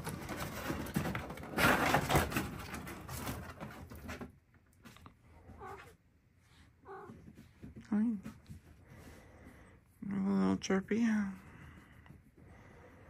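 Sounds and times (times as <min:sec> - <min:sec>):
rustling and tapping: 0:00.0 - 0:06.0
faint cat call: 0:05.4 - 0:06.0, 0:06.8 - 0:07.3.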